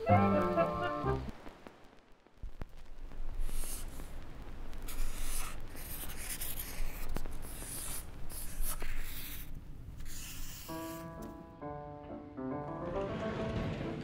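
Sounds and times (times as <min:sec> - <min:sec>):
marker writing on paper: 0:03.4 - 0:03.9, 0:04.9 - 0:11.2.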